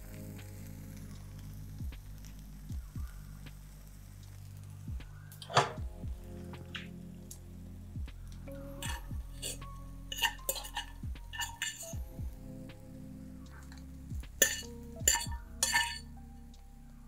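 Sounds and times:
background music with low beat: 0:00.0 - 0:17.0
metal spoon scraping a steel pan: 0:08.8 - 0:12.0, 0:14.4 - 0:16.1.

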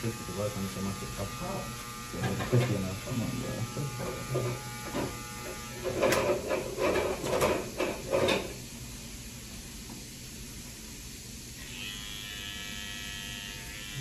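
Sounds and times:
electric hair clippers humming: 0:00.0 - 0:06.4, 0:11.6 - 0:14.0.

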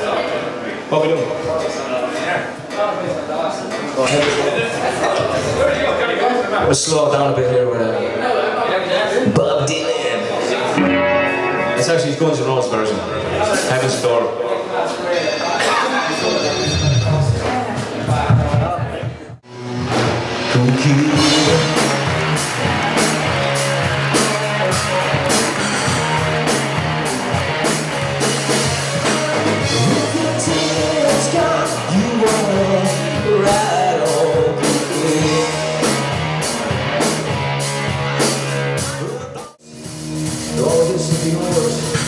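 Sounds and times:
electric guitar: 0:10.7 - 0:13.4, 0:19.5 - 0:39.2
drum kit: 0:15.6 - 0:42.0
person singing: 0:20.3 - 0:24.6, 0:28.5 - 0:36.0.

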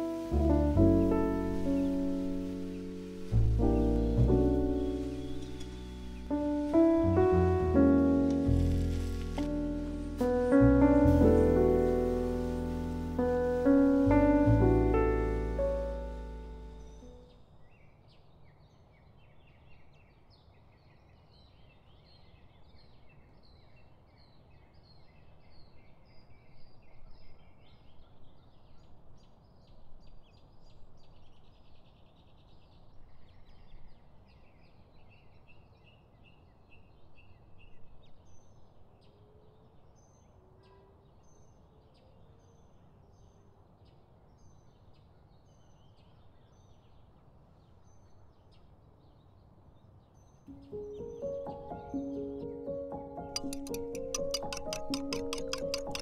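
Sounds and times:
small birds chirping: 0:00.0 - 0:18.2, 0:44.4 - 0:56.0
outdoor background noise: 0:00.0 - 0:56.0.

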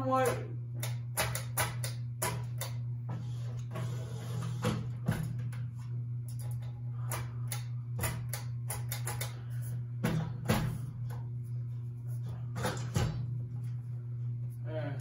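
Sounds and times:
ceiling fan motor hum: 0:00.0 - 0:15.0
hand knocking fan blades: 0:06.4 - 0:11.2.

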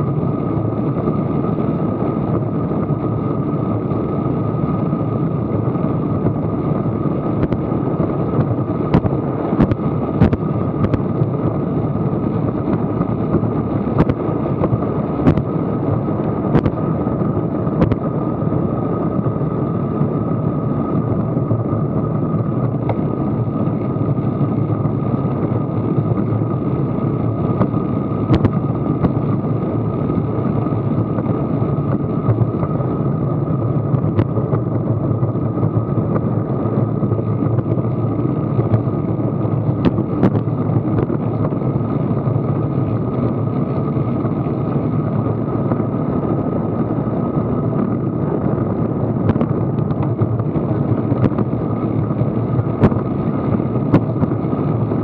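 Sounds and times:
wind and road noise: 0:00.0 - 0:55.0.

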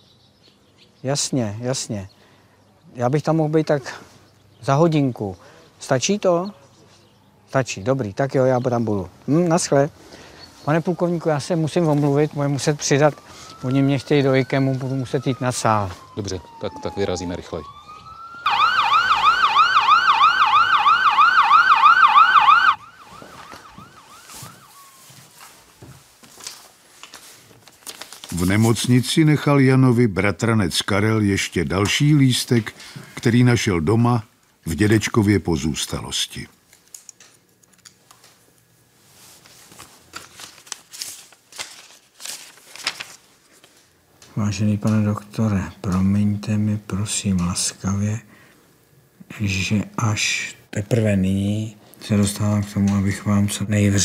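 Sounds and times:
small rustling sounds: 0:09.1 - 0:13.7, 0:22.9 - 0:28.9, 0:36.6 - 0:44.4
siren yelping: 0:12.4 - 0:25.2.

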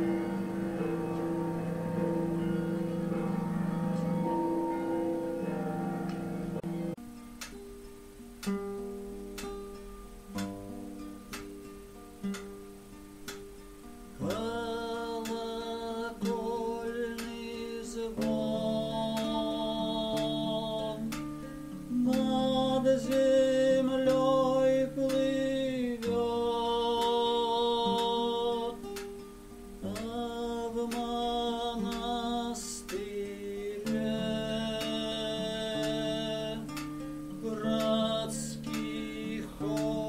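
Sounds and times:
strummed classical guitar: 0:00.0 - 0:40.0
man singing: 0:14.2 - 0:28.9, 0:29.8 - 0:40.0.

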